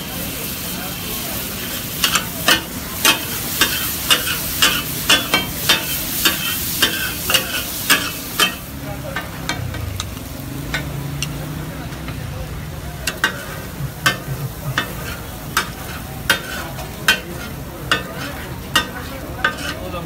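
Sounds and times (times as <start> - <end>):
food sizzling: 0.0 - 20.0
metal spatulas clanging on griddle: 1.8 - 11.4, 13.0 - 20.0.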